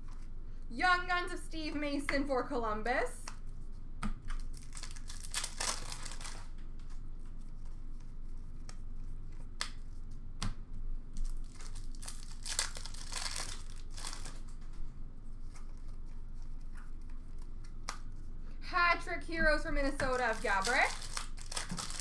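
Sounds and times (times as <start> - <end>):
wrappers tearing and crinkling: 4.4 - 6.6, 11.2 - 14.6, 19.8 - 22.0.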